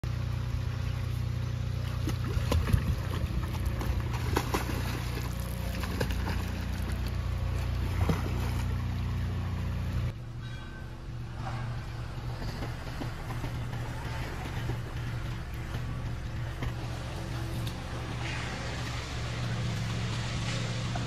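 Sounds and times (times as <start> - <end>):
steady low hum: 0.0 - 21.0
swimmers splashing: 0.7 - 10.0, 11.7 - 21.0.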